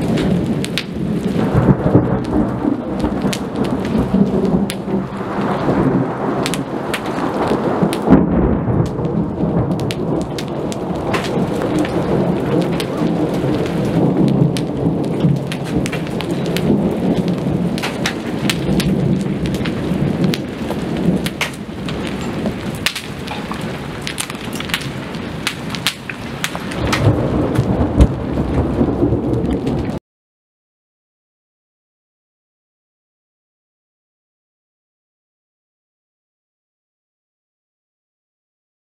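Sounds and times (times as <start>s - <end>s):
rolling thunder: 0.0s - 30.0s
steady rain: 0.0s - 30.0s.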